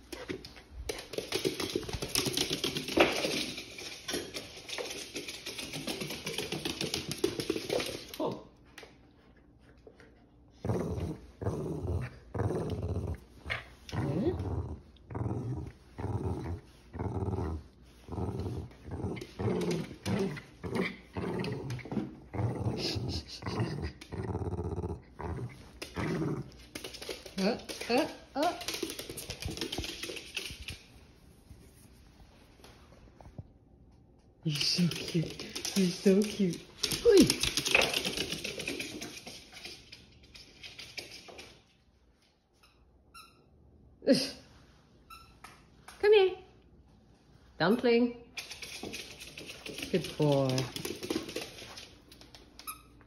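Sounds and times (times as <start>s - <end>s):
dog claws clicking on wooden floor: 0.0s - 8.2s, 25.4s - 31.0s, 34.5s - 41.7s, 48.4s - 53.0s
small dog growling: 10.6s - 26.6s.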